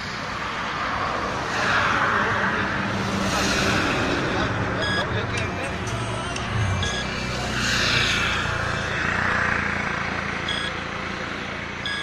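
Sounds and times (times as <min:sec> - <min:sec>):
vehicle passing on highway: 0:00.0 - 0:12.0
short electronic beeps: 0:04.8 - 0:05.2, 0:06.6 - 0:07.3, 0:10.4 - 0:10.8.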